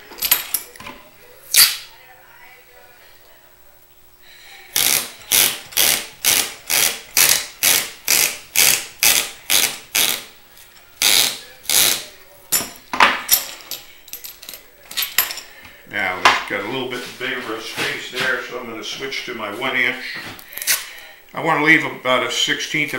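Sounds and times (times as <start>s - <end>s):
masking tape pulled off roll: 4.8s - 10.3s.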